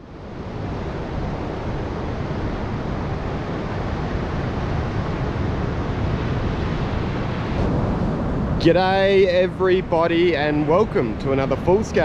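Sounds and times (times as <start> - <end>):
ocean surf washing onto beach: 0.0 - 12.0
wind rumbling on microphone: 0.0 - 12.0.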